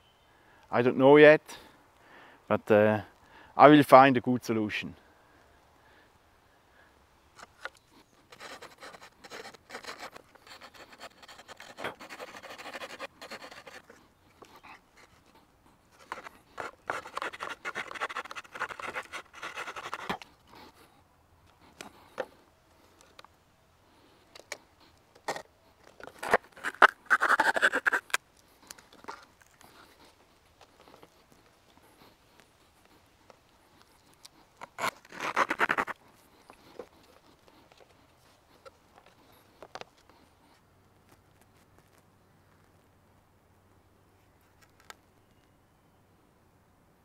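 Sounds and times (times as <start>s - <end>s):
knife scraping wood: 7.4s - 20.8s, 25.2s - 30.1s, 33.8s - 38.8s.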